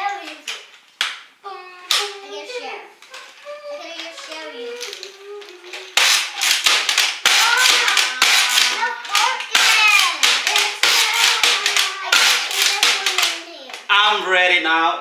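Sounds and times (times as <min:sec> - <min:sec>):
toy blaster plastic ratcheting: 0:05.8 - 0:13.5.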